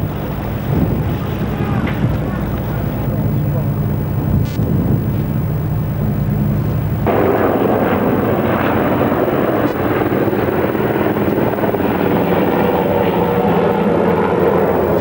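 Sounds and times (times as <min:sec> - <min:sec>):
low hum: 0:00.0 - 0:15.0
loud rushing noise: 0:06.0 - 0:15.0.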